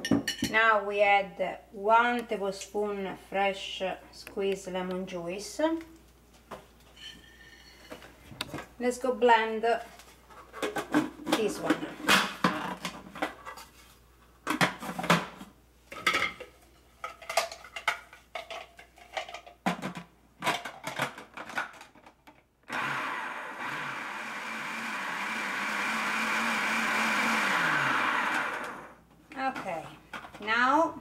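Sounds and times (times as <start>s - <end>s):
food processor motor chopping: 22.7s - 29.0s.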